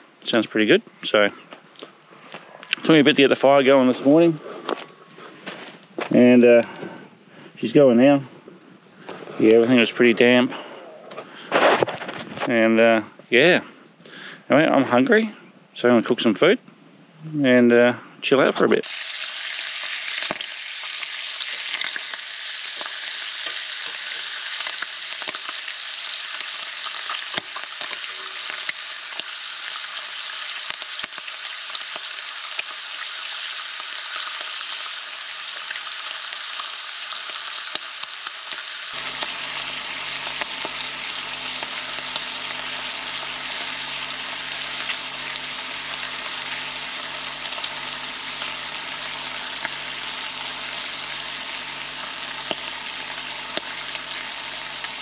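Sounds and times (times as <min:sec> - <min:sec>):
bacon sizzling in a pan: 0:18.8 - 0:55.0
low hum: 0:39.0 - 0:55.0.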